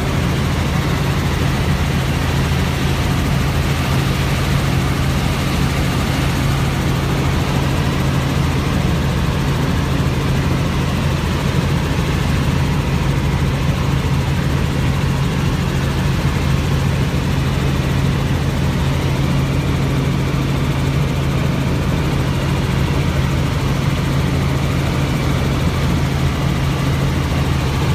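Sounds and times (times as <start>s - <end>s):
helicopter engine and rotor drone: 0.0s - 27.9s.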